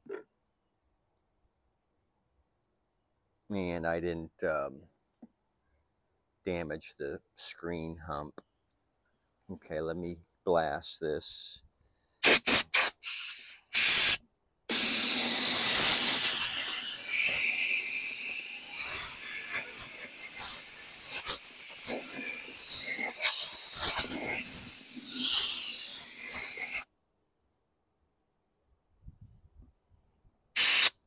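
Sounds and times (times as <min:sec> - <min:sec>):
spray can hissing: 0:12.2 - 0:26.9, 0:30.6 - 0:31.0.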